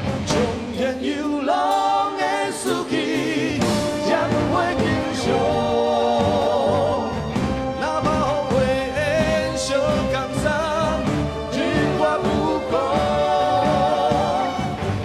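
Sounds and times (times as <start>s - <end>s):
orchestral accompaniment: 0.0s - 15.0s
man singing into a microphone: 7.8s - 11.1s.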